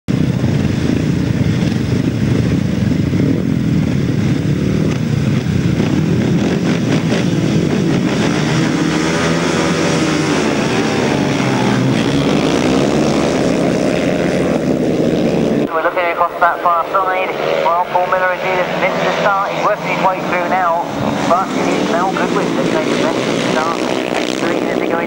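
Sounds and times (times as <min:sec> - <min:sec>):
sidecar engines revving and accelerating: 0:00.1 - 0:25.0.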